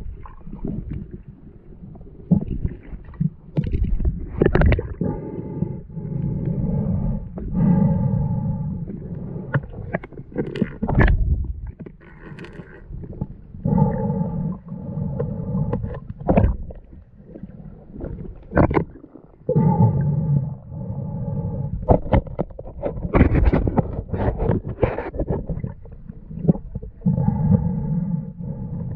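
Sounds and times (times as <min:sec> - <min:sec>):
diver exhaling bubbles underwater: 0:02.3 - 0:05.8.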